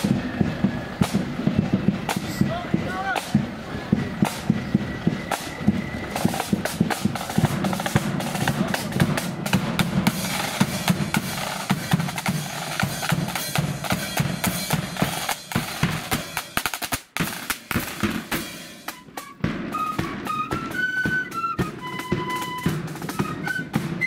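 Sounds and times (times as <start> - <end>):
snare and bass drums parade beat: 0.0 - 24.0.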